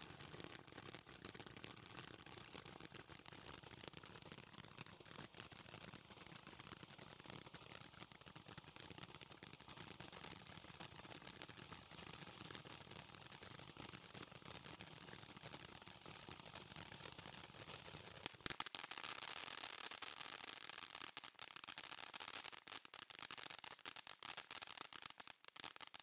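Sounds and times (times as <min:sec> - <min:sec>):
firework crackling: 0:16.0 - 0:26.0.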